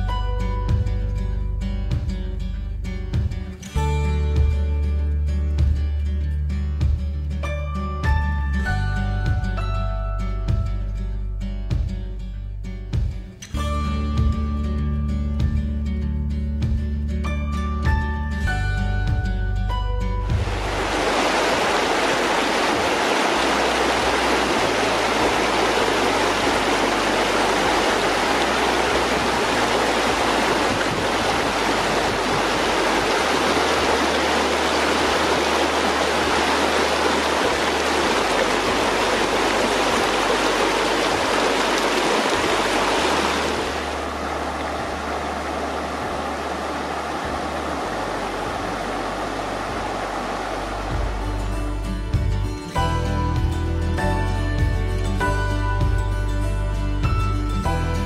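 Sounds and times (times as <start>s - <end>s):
river rushing over rocks: 20.3s - 51.9s.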